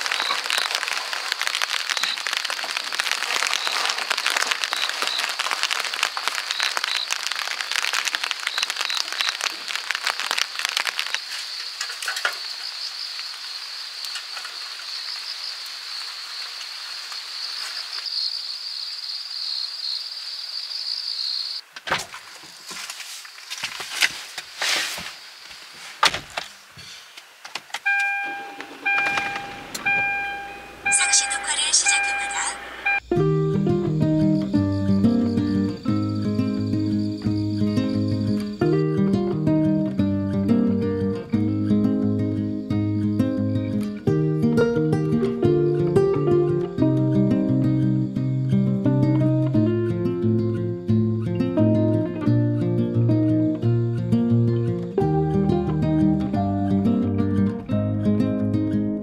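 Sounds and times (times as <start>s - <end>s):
rain pattering on wooden deck: 0.0s - 28.0s, 35.8s - 40.0s
car warning chime beeping: 27.8s - 33.1s.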